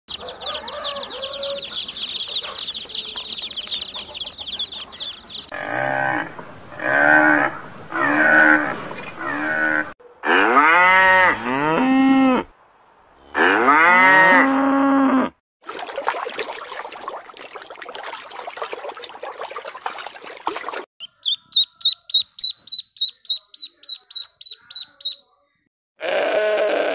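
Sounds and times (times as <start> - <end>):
fast high animal trill: 21.0 - 25.2
long rising and falling calls: 21.0 - 25.2
rapid repeated chirps: 21.0 - 25.3.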